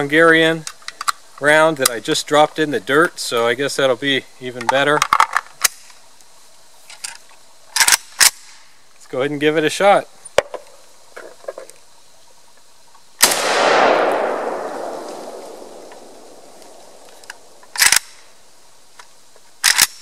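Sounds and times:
rifle handling clacks: 7.8 - 8.4, 13.3 - 18.2, 19.6 - 20.0
rifle shot with echo: 13.2 - 18.2.

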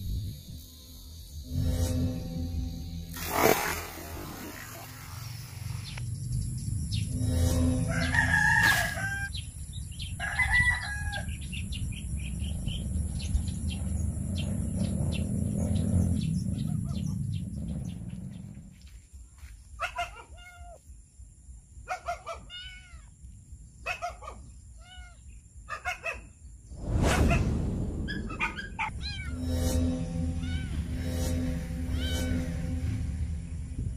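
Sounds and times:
rooster crowing: 7.8 - 9.4, 10.2 - 11.5
low rumble: 11.3 - 18.9, 26.7 - 33.9.

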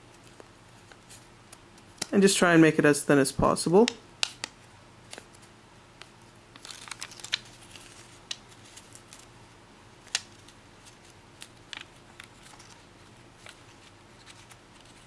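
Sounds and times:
paper crinkling: 5.0 - 9.4, 10.0 - 15.0
paper crackles and ticks: 6.0 - 9.3, 10.0 - 12.8.

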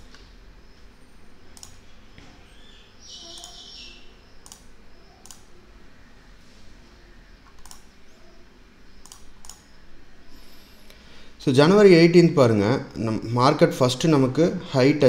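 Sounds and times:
computer mouse clicks: 1.5 - 1.8, 3.3 - 3.6, 4.4 - 5.5, 7.4 - 7.9, 9.0 - 9.7.

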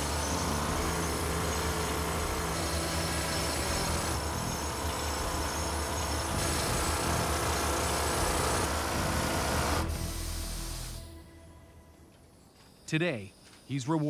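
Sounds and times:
pneumatic rock drill boring concrete: 0.0 - 11.1.

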